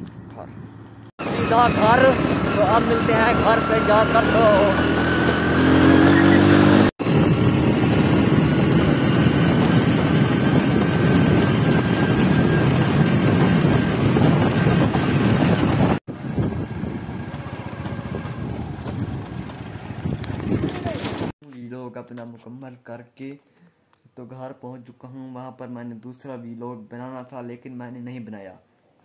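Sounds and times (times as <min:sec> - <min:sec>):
motorcycle engine running: 0:00.8 - 0:21.3.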